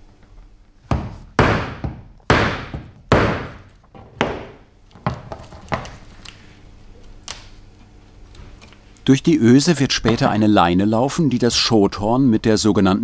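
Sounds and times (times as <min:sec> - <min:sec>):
mallet striking metal punch: 0:00.9 - 0:03.6.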